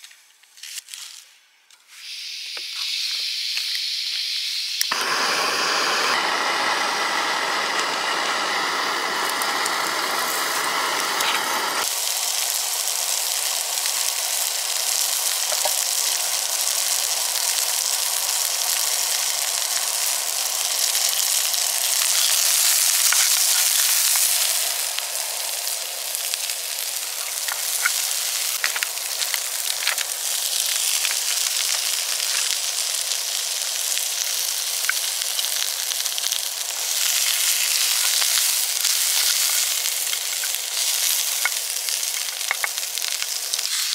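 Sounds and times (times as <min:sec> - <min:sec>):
onion sizzling in a frying pan: 0:01.9 - 0:43.9
wooden spatula clicks and scrapes: 0:37.4 - 0:43.9.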